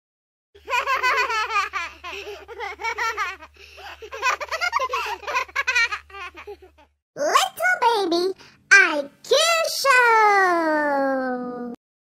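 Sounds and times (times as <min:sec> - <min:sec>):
baby giggling and laughing: 0:00.6 - 0:06.9.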